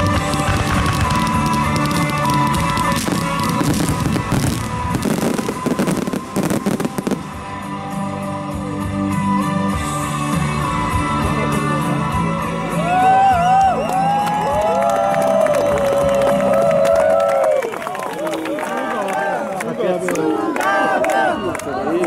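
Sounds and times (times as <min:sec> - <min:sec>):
fireworks bursting and crackling: 0:00.0 - 0:07.8
background music: 0:00.0 - 0:18.0
crowd whooping and cheering: 0:12.7 - 0:22.0.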